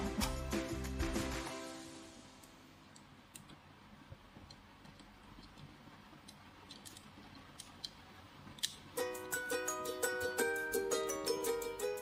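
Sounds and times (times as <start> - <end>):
plastic parts clicking together: 4.5 - 8.8.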